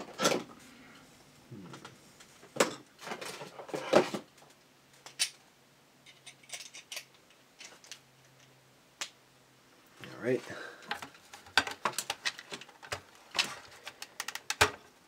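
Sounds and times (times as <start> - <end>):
plastic parts clicking and knocking: 10.8 - 15.0.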